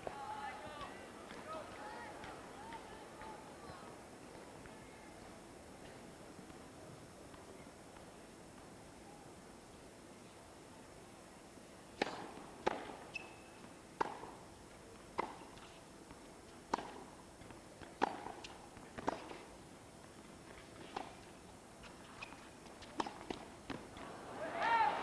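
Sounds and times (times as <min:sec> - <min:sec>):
racket striking tennis ball: 0:12.0 - 0:13.4, 0:14.0 - 0:14.4, 0:15.2 - 0:15.5, 0:16.7 - 0:17.1, 0:17.8 - 0:19.5, 0:22.2 - 0:24.1
shoe squeak: 0:13.1 - 0:13.6.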